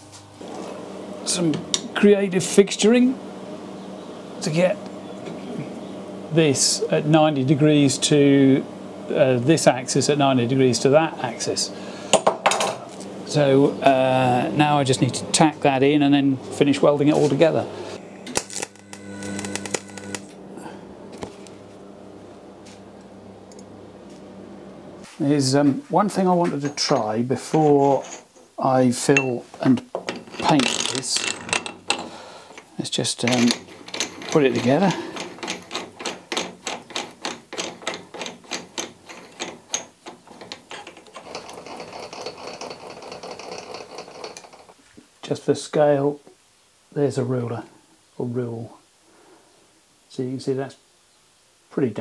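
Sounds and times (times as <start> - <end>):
welder humming: 0.0 - 25.6
faint hum with high whine: 0.0 - 52.0
welding arc crackling: 17.8 - 24.2
welder clicks: 18.2 - 20.4.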